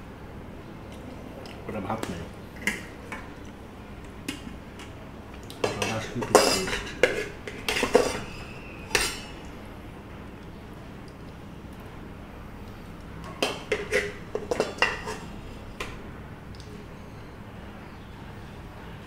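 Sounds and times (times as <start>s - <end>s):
steel dishes and spoon clinking: 5.6s - 9.4s, 13.2s - 15.4s.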